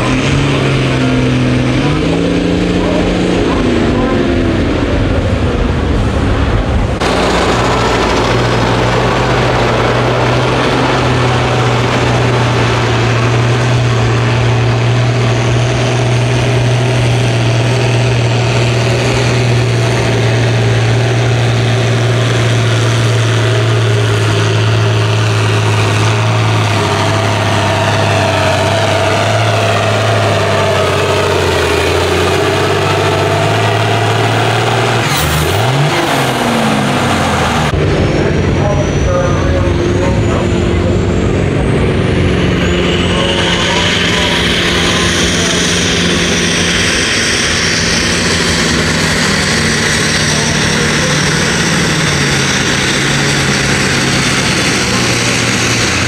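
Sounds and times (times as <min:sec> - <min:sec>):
tractor diesel engine at high revs: 0:00.0 - 0:56.0.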